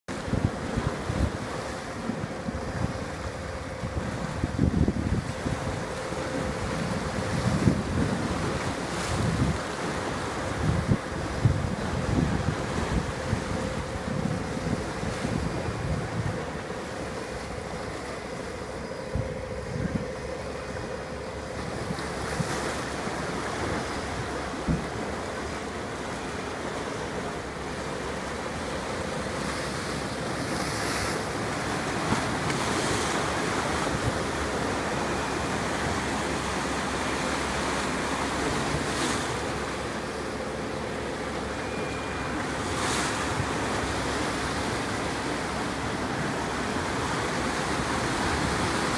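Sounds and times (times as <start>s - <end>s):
wind buffeting the microphone: 0.1s - 16.8s, 19.0s - 25.2s
sea waves washing: 0.1s - 48.9s.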